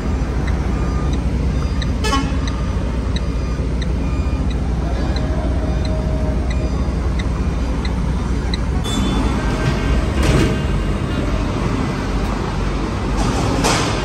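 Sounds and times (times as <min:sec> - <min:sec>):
reversing alarm beeps: 0:00.0 - 0:10.0
truck diesel engine running: 0:00.0 - 0:14.0.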